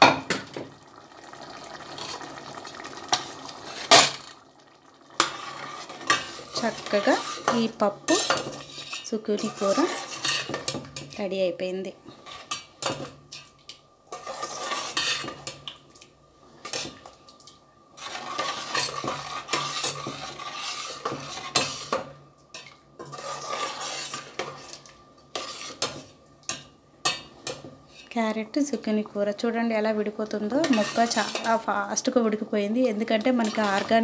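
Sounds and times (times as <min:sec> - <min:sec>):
metal spoon scraping a pot: 0:05.2 - 0:11.2, 0:14.1 - 0:15.6, 0:18.0 - 0:28.2, 0:30.6 - 0:31.7, 0:33.3 - 0:34.0.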